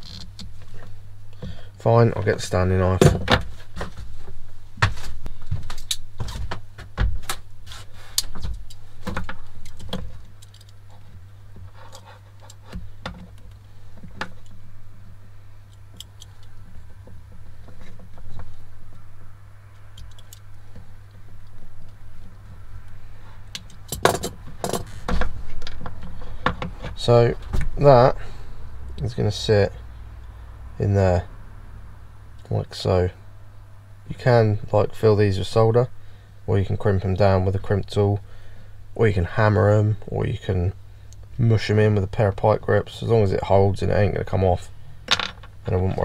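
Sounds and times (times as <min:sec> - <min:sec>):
steady low hum: 0:00.0 - 0:46.0
tools and cables clicking and rattling: 0:08.2 - 0:14.6, 0:19.8 - 0:20.8, 0:21.4 - 0:27.0.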